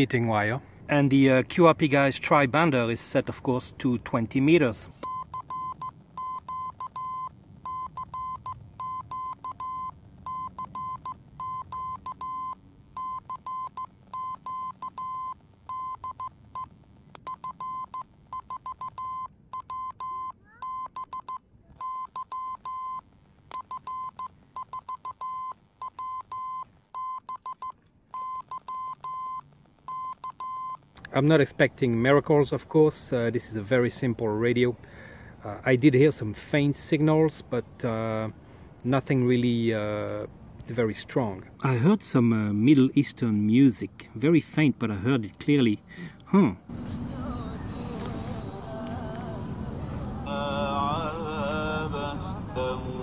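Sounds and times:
morse code beeps: 5.0 - 16.7, 17.3 - 30.9.

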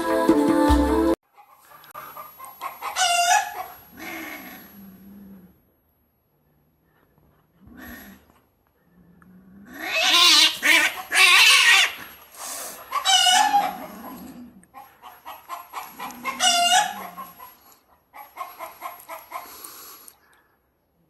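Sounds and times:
cat growling: 4.0 - 5.7, 7.6 - 10.8, 13.4 - 14.7
cats yowling and screeching: 9.8 - 12.0, 13.0 - 14.4.

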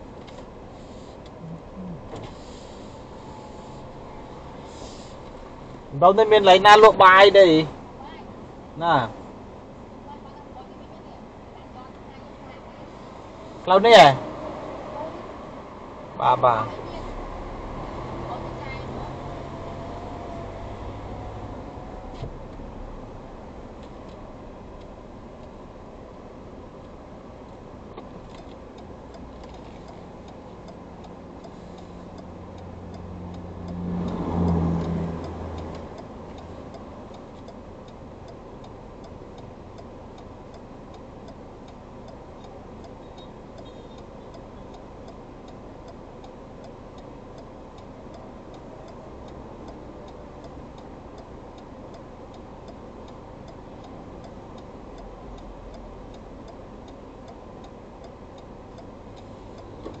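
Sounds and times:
passing vehicle engine and tyres: 0.0 - 10.1, 12.6 - 60.0
car interior road noise: 0.0 - 60.0
steady light ticking: 26.8 - 60.0.

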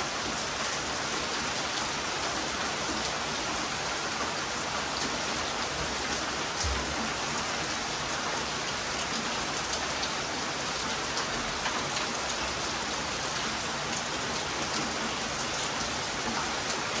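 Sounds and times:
heavy rain: 0.0 - 17.0.

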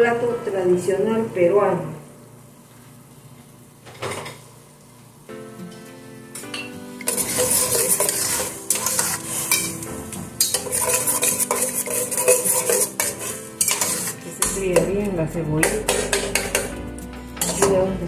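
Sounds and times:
food sizzling in oil: 6.9 - 14.8
metal spoon scraping pot: 7.0 - 9.8, 10.4 - 15.0, 15.6 - 16.8, 17.4 - 17.8.

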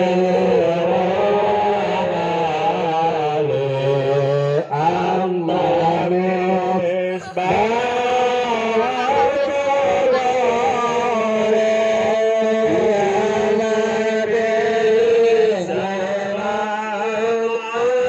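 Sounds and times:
man chanting: 0.0 - 18.0.

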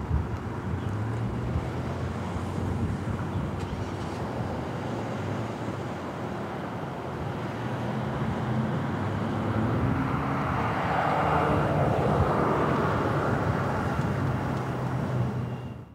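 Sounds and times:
passing traffic: 0.0 - 15.9
road noise: 0.0 - 15.9.

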